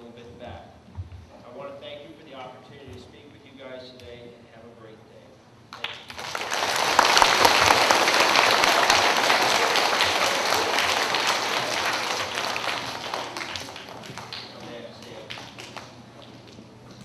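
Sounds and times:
children applauding: 5.8s - 14.6s.

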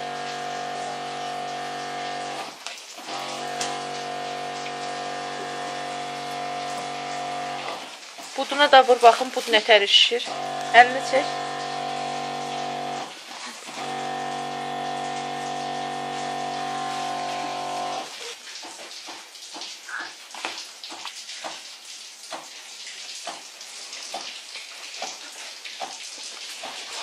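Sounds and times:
electric pump humming: 0.0s - 8.0s, 10.2s - 18.2s.

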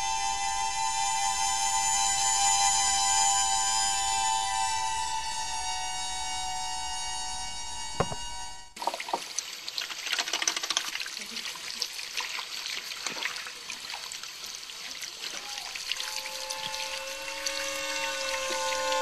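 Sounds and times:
tap water running over hands: 8.8s - 17.6s.

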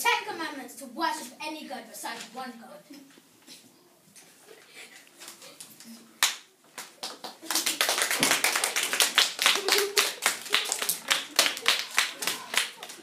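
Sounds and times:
small group applauding: 6.2s - 13.0s.

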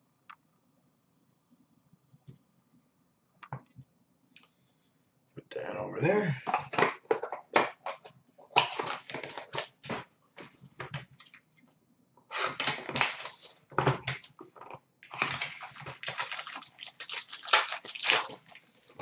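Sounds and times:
card pack wrappers crinkling: 8.5s - 11.4s, 12.3s - 19.0s.

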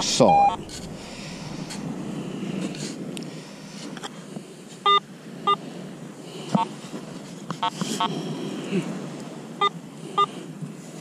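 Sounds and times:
steady low noise: 0.0s - 5.2s
metal detector beeps: 0.3s - 0.6s, 4.8s - 5.6s.

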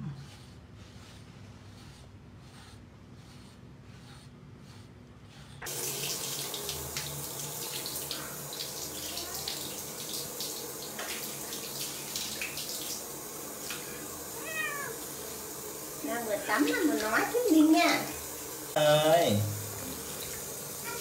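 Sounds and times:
water tap running into sink: 5.7s - 21.0s.

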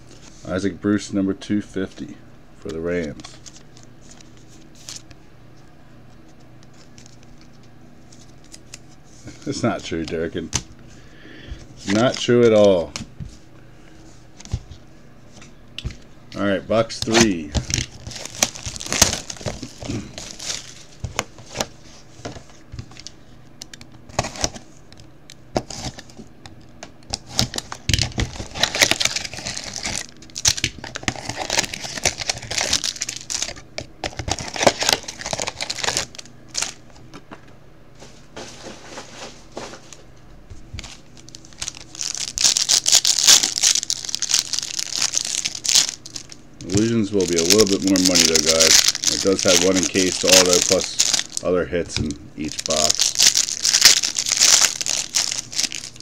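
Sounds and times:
plastic wrap crinkling and tearing: 17.0s - 21.8s, 27.1s - 36.8s, 40.8s - 56.0s.

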